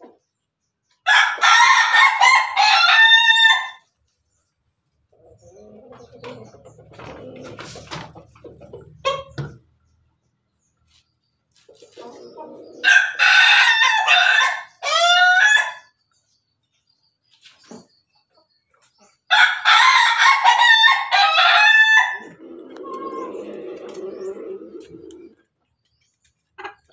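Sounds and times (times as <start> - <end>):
rooster crowing: 1.1 - 3.8, 19.3 - 24.0.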